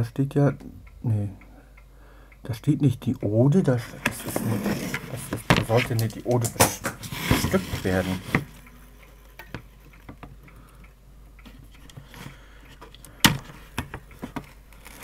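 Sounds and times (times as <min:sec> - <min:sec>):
faint steady hum: 0:00.0 - 0:15.0
small clicks and taps: 0:04.0 - 0:07.1, 0:08.2 - 0:15.0.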